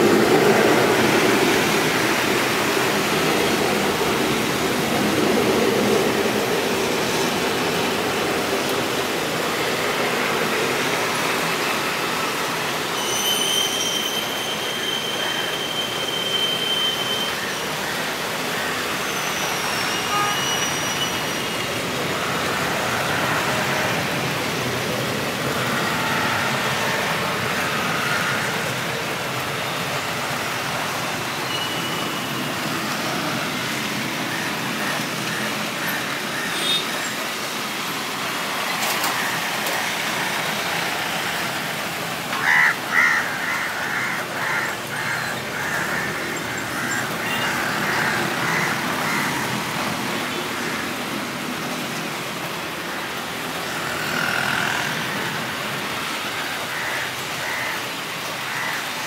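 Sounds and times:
heavy rain: 0:00.0 - 0:59.0
thin high whistling tones: 0:13.0 - 0:17.3.

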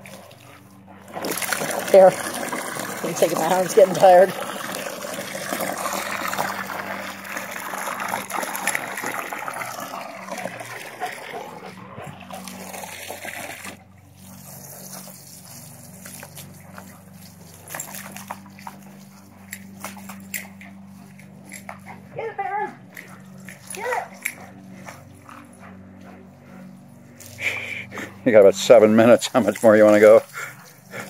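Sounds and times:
hose spray splashing: 0:00.0 - 0:11.4, 0:12.2 - 0:20.2, 0:27.2 - 0:31.0.

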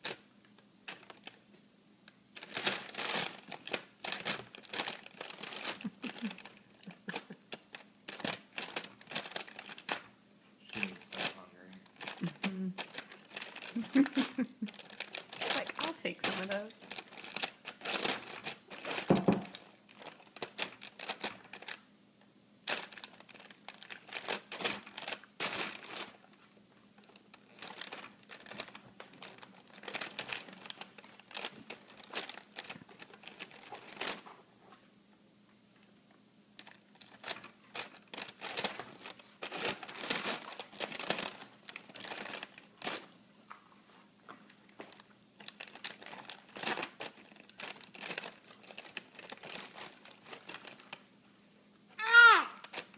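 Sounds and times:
plastic bag crinkling: 0:00.9 - 0:01.4, 0:02.3 - 0:21.9, 0:22.6 - 0:34.4, 0:36.6 - 0:43.1, 0:44.7 - 0:51.1, 0:52.1 - 0:52.9.

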